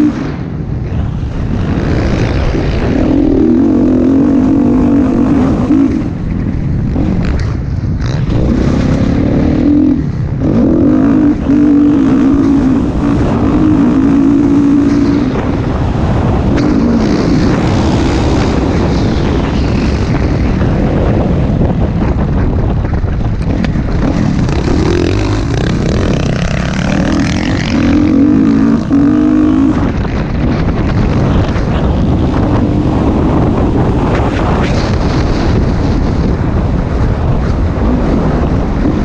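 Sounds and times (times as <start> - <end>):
dirt bike engine revving: 0.0 - 0.5, 1.2 - 39.0
wind on microphone: 0.0 - 39.0.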